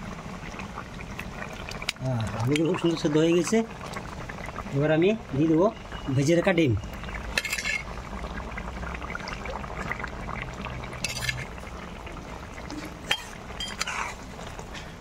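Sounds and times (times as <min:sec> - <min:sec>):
curry simmering in a pan: 0:00.0 - 0:15.0
clinks and scrapes against pan: 0:07.4 - 0:07.9, 0:11.0 - 0:11.5, 0:13.0 - 0:14.2.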